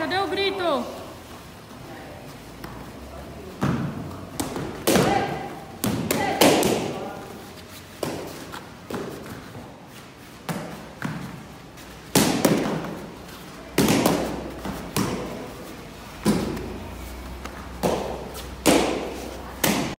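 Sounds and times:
kicks slapping kicking paddles: 0:03.6 - 0:07.0, 0:12.0 - 0:13.1, 0:13.7 - 0:15.4, 0:17.8 - 0:20.0.

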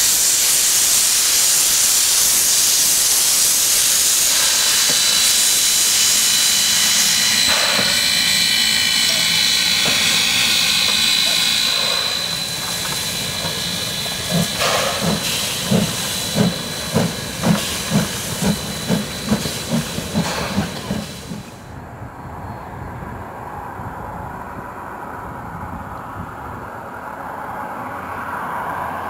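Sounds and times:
steam hissing: 0:00.0 - 0:21.7
steam locomotive chuffing: 0:00.0 - 0:21.8.

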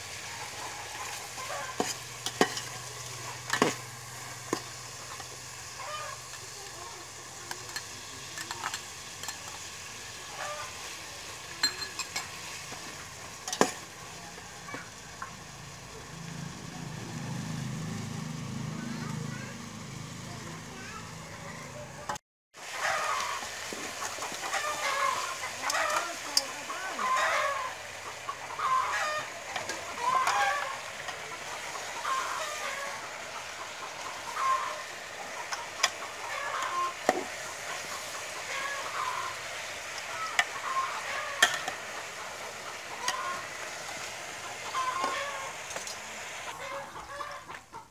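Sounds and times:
chickens clucking: 0:00.0 - 0:13.4, 0:20.3 - 0:47.9
pork sizzling in oil: 0:00.0 - 0:47.6.

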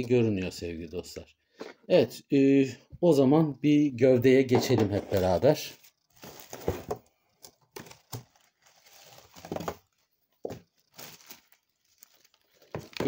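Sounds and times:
plastic wrapping crinkling: 0:05.8 - 0:13.0.

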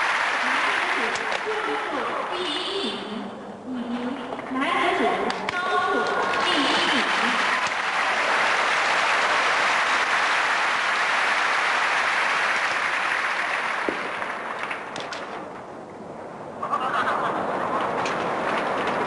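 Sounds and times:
audience applauding: 0:00.0 - 0:02.2, 0:06.1 - 0:15.4, 0:17.6 - 0:19.0.

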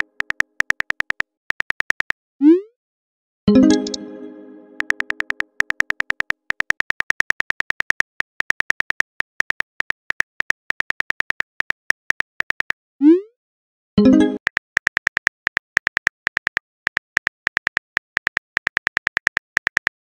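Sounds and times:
phone keyboard typing clicks: 0:00.0 - 0:02.2, 0:04.8 - 0:12.7, 0:14.2 - 0:20.0.

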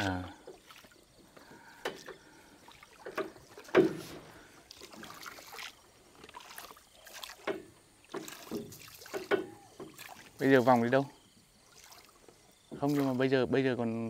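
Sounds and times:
oar blades swishing through water: 0:00.0 - 0:13.4
oar knocking at pivot: 0:03.0 - 0:04.2, 0:07.4 - 0:10.1.

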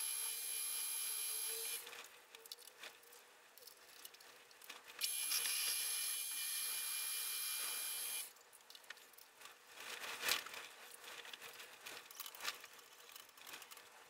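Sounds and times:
crinkly rattle: 0:01.8 - 0:05.5, 0:08.3 - 0:14.0
clicks and scrapes of handling: 0:08.3 - 0:14.0.

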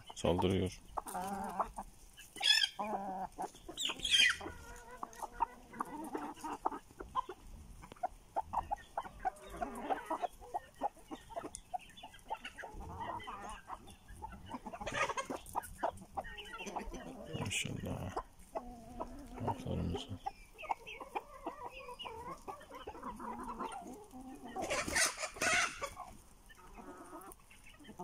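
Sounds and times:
chickens clucking: 0:00.0 - 0:28.0
shrill chicken squawk: 0:02.4 - 0:03.2, 0:03.8 - 0:04.6, 0:24.5 - 0:26.0.

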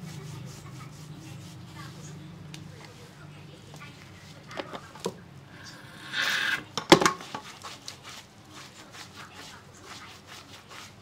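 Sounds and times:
rubbing lathered hair: 0:00.0 - 0:04.5, 0:07.2 - 0:11.0.

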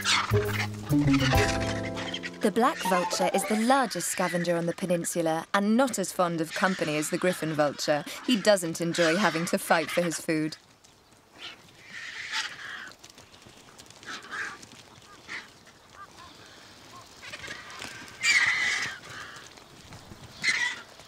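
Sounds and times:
vultures harsh calls: 0:00.0 - 0:04.8, 0:06.4 - 0:10.4, 0:11.4 - 0:13.0, 0:14.0 - 0:19.6, 0:20.3 - 0:21.0.

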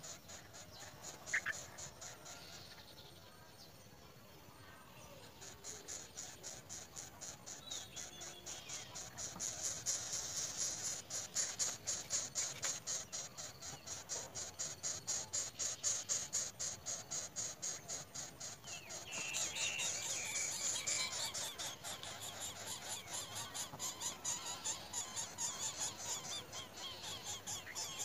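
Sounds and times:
animal squeaking and chirping: 0:05.6 - 0:28.0.

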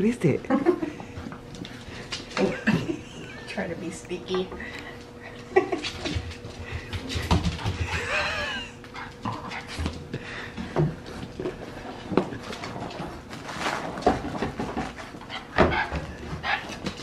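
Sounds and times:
puppies scuffling on tile floor: 0:00.6 - 0:17.0
puppies panting: 0:03.1 - 0:13.1.

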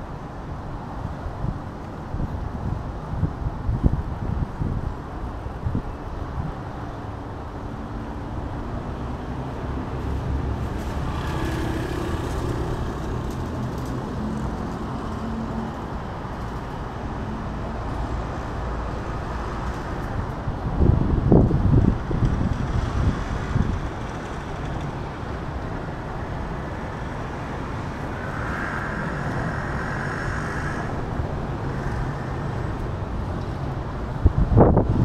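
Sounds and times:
street traffic: 0:00.0 - 0:35.0
vehicle engine humming past: 0:07.9 - 0:20.2, 0:22.6 - 0:34.8.

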